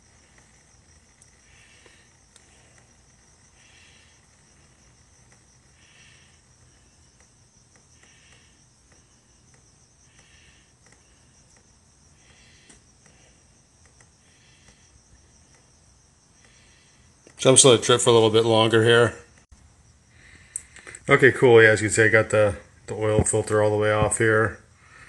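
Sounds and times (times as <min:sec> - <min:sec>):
faint ticks: 0:00.0 - 0:17.4, 0:20.3 - 0:21.1
high-pitched insect hum: 0:00.0 - 0:25.0
insect trills: 0:00.0 - 0:25.0.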